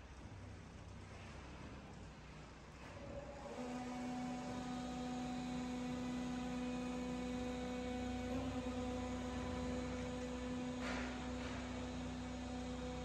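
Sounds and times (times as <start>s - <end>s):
hydraulic power pack hum: 2.8s - 13.0s.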